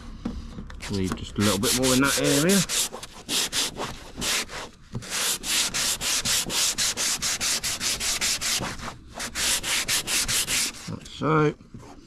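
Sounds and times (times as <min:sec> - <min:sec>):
sandpaper rubbing on bumper: 0:01.4 - 0:10.9.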